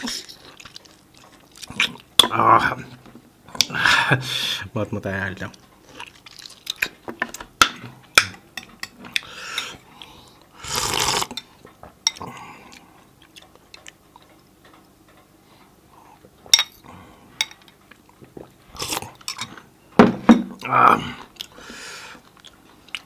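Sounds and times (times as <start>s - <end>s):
slurping broth: 10.6s - 11.4s.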